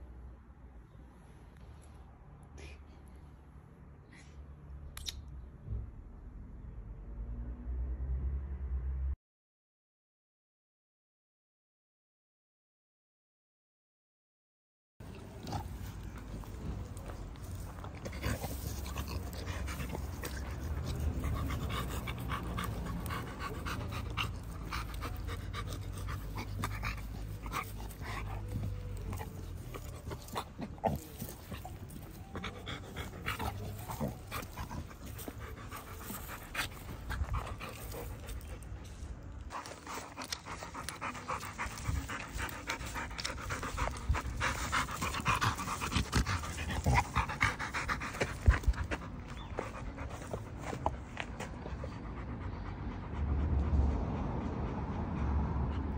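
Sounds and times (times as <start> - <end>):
scuffling in dry dirt and leaves: 15.0 - 51.7
dog panting: 15.1 - 55.9.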